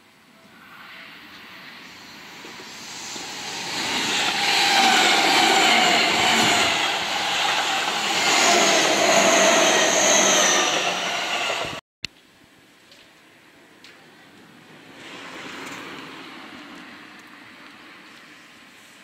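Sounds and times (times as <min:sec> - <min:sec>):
train wheels on rails: 0:01.2 - 0:11.8.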